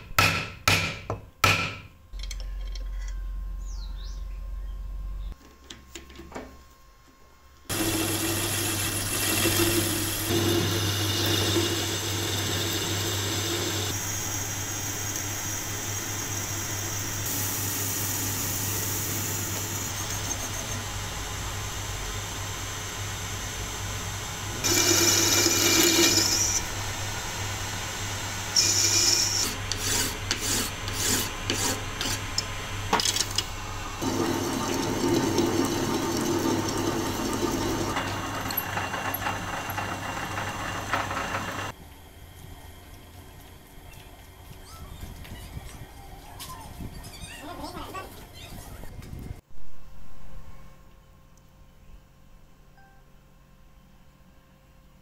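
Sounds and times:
drill scraping into metal bar: 0:07.7 - 0:14.0, 0:24.6 - 0:26.7, 0:28.6 - 0:32.4, 0:34.0 - 0:41.7
lathe motor hum: 0:07.7 - 0:32.8, 0:33.5 - 0:41.8.

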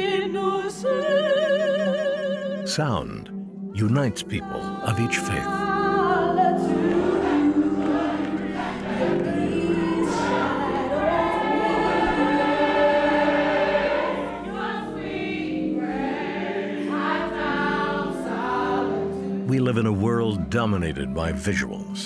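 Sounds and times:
choir singing held notes: 0:03.8 - 0:20.5.

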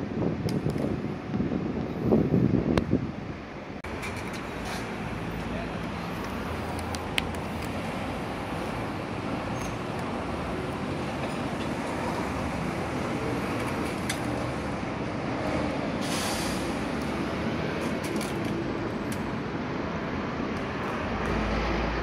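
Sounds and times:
traffic rumble: 0:00.0 - 0:22.0
brief hiss: 0:16.0 - 0:16.7.

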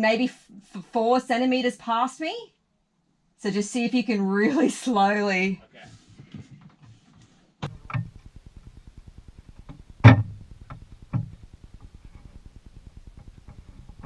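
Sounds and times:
sharp knocks: 0:10.0 - 0:11.4.

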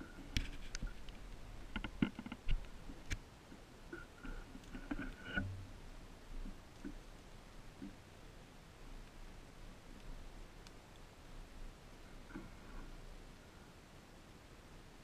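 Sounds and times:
small clicks and light knocks: 0:00.0 - 0:05.6, 0:06.4 - 0:08.0.

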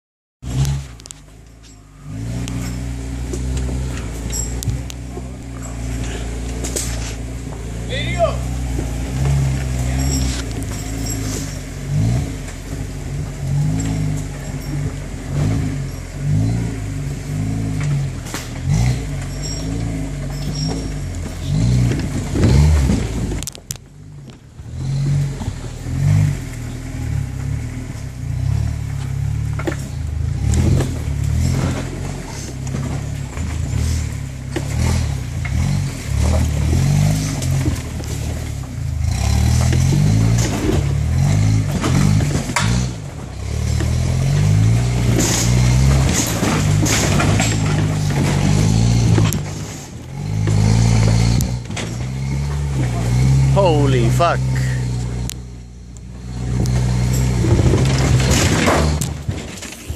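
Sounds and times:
car engine revving: 0:00.4 - 0:59.9
truck body clattering over rocks: 0:29.0 - 0:53.4, 0:56.2 - 0:59.9.

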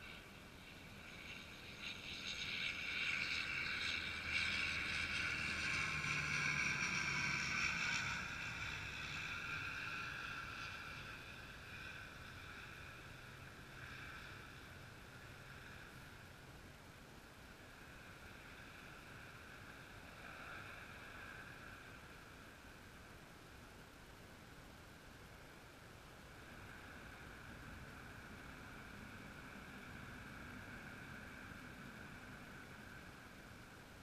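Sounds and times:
jet aircraft passing: 0:00.0 - 0:16.1.

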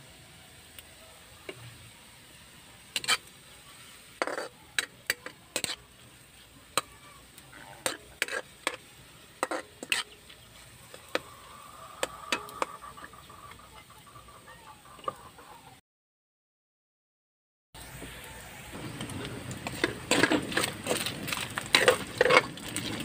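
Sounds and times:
metal spatula scraping wok: 0:02.7 - 0:14.2, 0:17.8 - 0:23.0.

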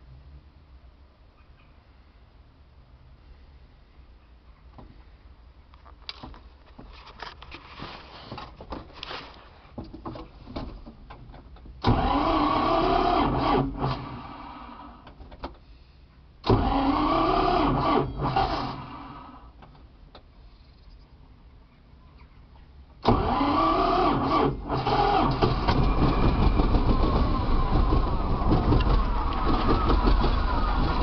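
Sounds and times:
tractor engine cranking: 0:08.3 - 0:15.6, 0:16.4 - 0:19.9, 0:23.0 - 0:31.0.

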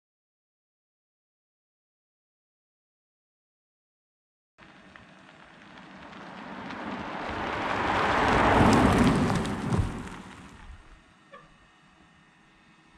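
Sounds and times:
tyres rolling over gritty surface: 0:04.6 - 0:10.7.

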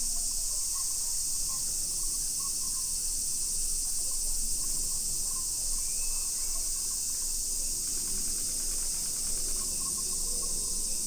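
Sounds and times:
cicada chorus drone: 0:00.0 - 0:11.0.

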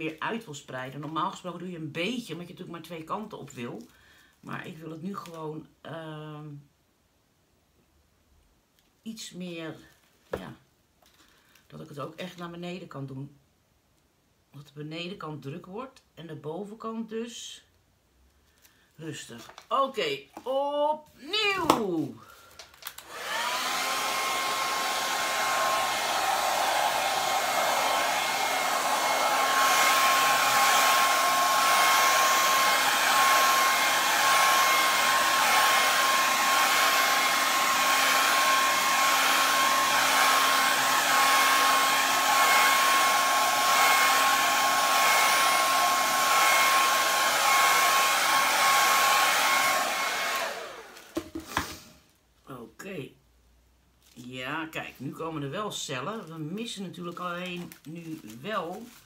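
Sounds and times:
hair dryer blowing with whine: 0:22.9 - 0:51.8.

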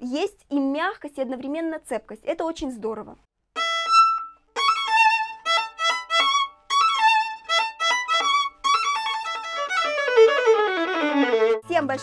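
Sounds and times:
violin bowed with vibrato: 0:03.6 - 0:12.0.

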